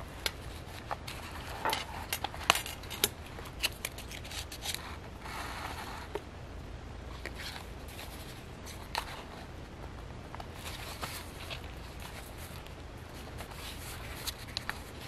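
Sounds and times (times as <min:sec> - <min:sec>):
stiff paper pages rustling: 0:00.2 - 0:06.1, 0:10.3 - 0:15.0.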